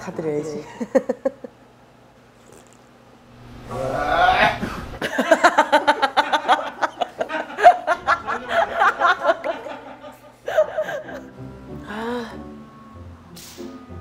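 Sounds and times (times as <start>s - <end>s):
woman laughing heartily: 0.6s - 1.6s, 4.6s - 11.4s
garbled vocal cry: 3.7s - 4.7s.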